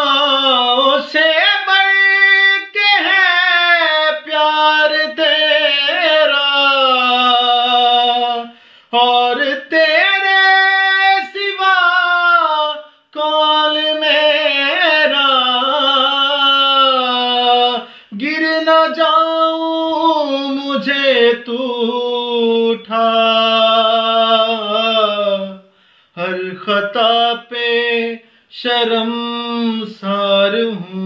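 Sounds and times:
man singing unaccompanied: 0.0 - 31.0
man breathing: 8.5 - 9.0, 17.8 - 18.2, 25.7 - 26.2, 28.2 - 28.5.

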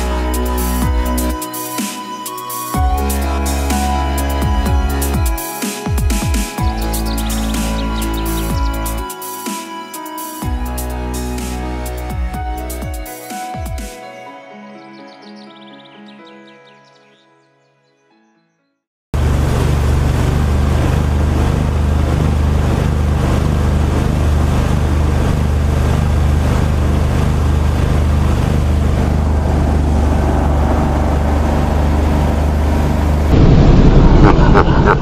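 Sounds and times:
boat motor running: 6.6 - 9.1, 19.2 - 33.6
water rushing: 19.2 - 34.9
wind rushing: 33.3 - 35.0.

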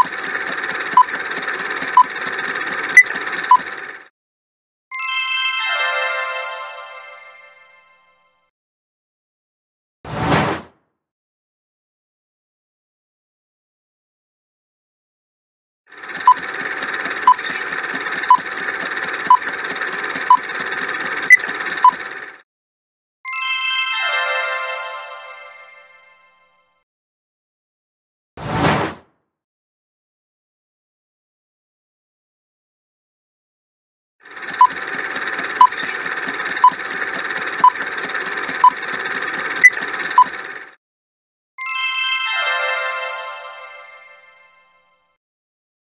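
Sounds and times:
fast clock ticking: 0.0 - 4.0, 15.9 - 22.4, 34.2 - 40.8.

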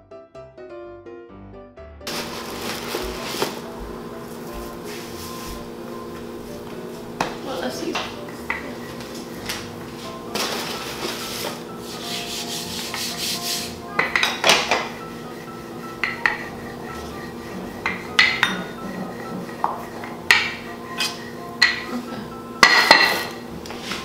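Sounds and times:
rolling pin rubbing on dough: 3.0 - 13.8, 14.5 - 21.8
rolling pin knocking on counter: 14.0 - 15.0, 15.9 - 17.0, 17.9 - 20.6.

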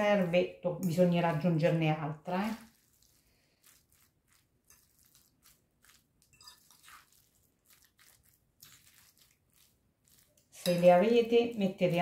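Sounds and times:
salad squelching in a glass bowl: 0.0 - 12.0.

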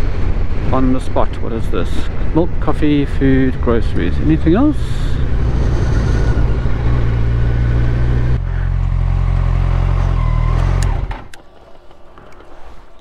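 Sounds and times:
motorcycle engine running: 4.2 - 10.4.

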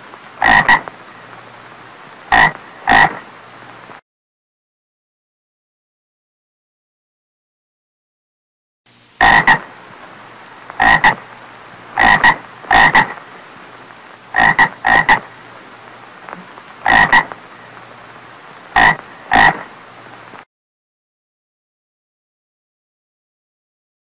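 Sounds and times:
faint steady hiss: 0.0 - 4.0, 8.9 - 20.5
toad croaking: 0.4 - 0.9, 2.3 - 3.3, 9.2 - 9.7, 10.7 - 11.3, 11.9 - 13.2, 14.3 - 15.3, 16.3 - 17.4, 18.7 - 19.7.

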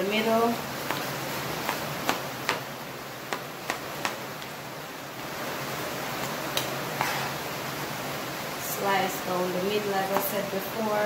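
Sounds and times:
steady background hiss: 0.0 - 11.0
knife tapping on cutting mat: 3.3 - 4.2.

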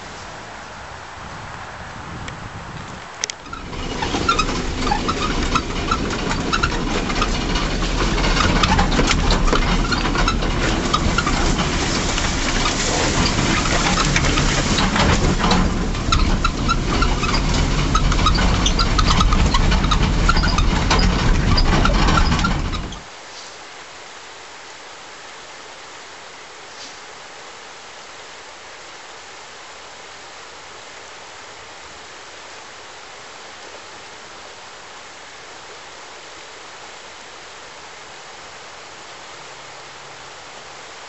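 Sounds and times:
vehicle engine rumbling: 0.0 - 23.1
clicks and knocks: 3.2 - 23.0.

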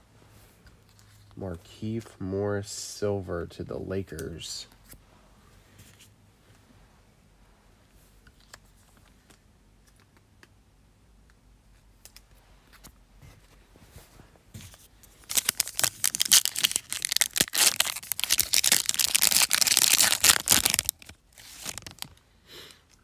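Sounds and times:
foil wrapper tearing and crinkling: 15.2 - 22.2.

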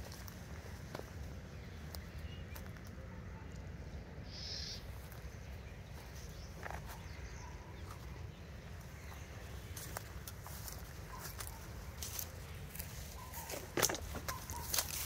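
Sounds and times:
rustle of dry brush: 8.8 - 15.0.

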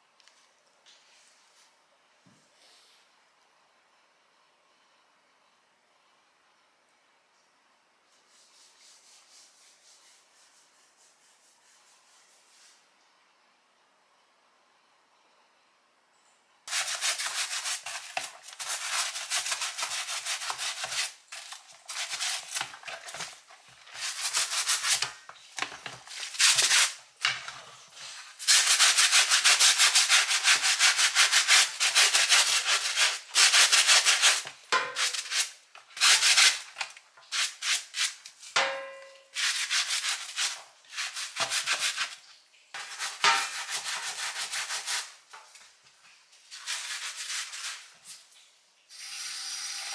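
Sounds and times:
plastic brush scrubbing in sink: 16.7 - 38.6, 39.3 - 45.6, 46.4 - 48.4.

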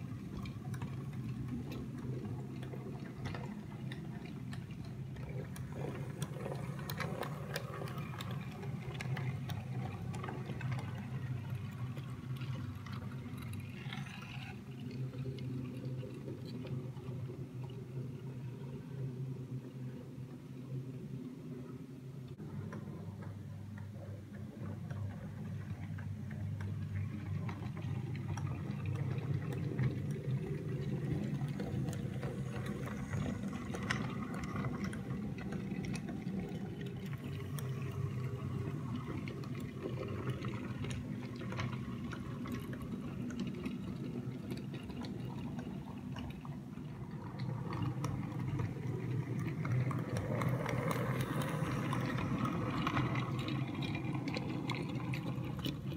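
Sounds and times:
wheels clicking over rail joints: 0.0 - 17.8, 22.4 - 55.9
model train motor hum: 0.0 - 18.6, 27.0 - 43.8, 44.8 - 55.9.

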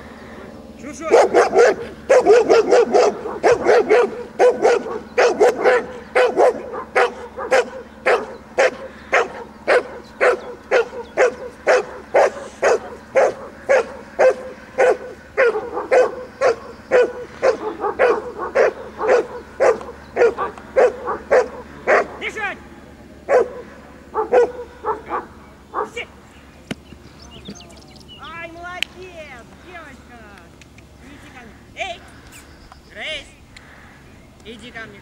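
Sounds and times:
dog barking loudly: 0.9 - 22.6, 23.2 - 26.1.

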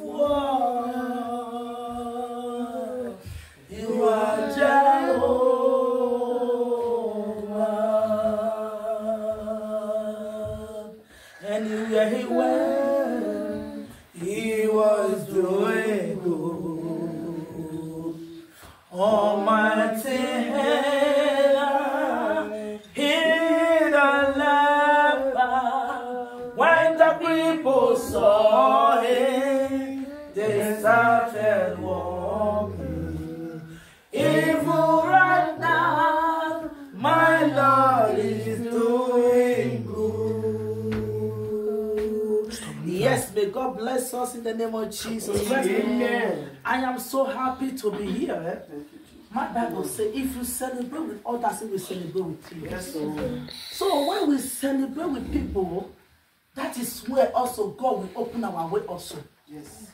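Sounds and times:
woman singing unaccompanied: 18.9 - 43.4.

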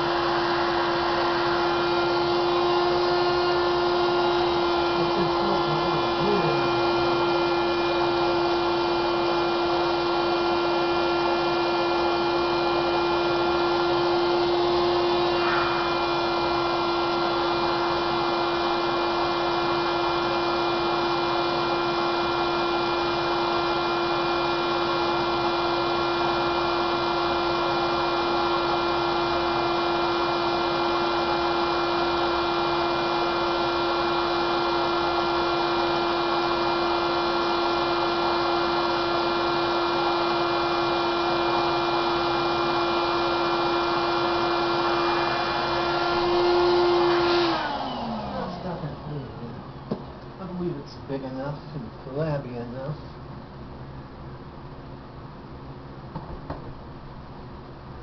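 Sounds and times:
blower motor hum: 0.0 - 58.0
air rushing through hose: 15.0 - 17.7.

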